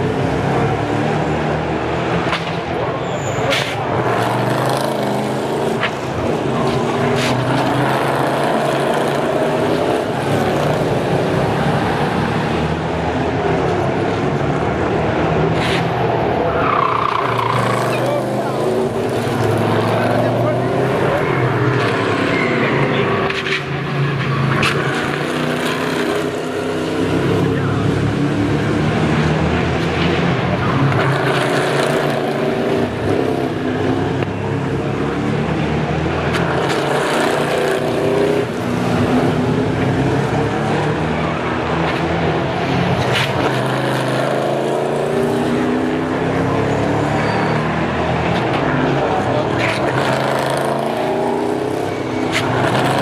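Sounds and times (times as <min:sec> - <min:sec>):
race car engines passing: 0:00.0 - 0:53.0.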